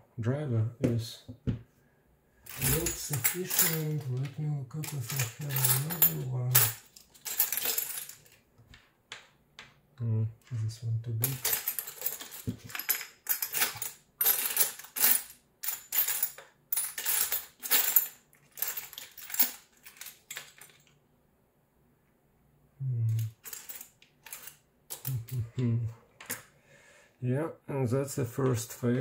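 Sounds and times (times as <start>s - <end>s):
metal hand tools clinking: 2.5s - 8.4s, 11.2s - 20.9s.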